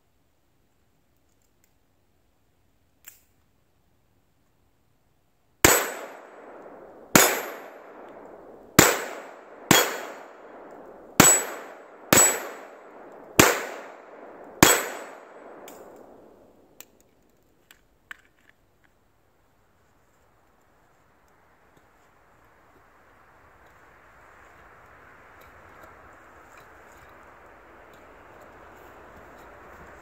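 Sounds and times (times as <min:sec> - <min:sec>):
pistol shots: 0:05.6 - 0:16.8.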